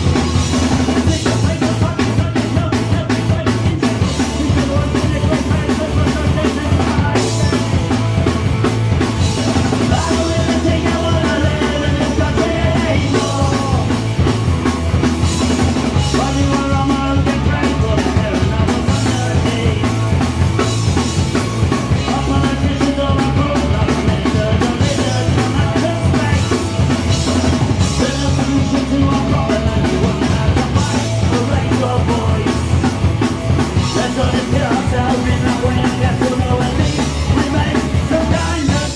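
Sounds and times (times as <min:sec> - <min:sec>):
punk rock band playing live: 0:00.0 - 0:38.9.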